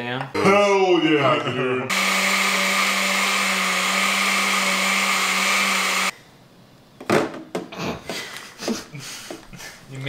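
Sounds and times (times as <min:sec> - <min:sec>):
blender running: 0:01.9 - 0:06.1.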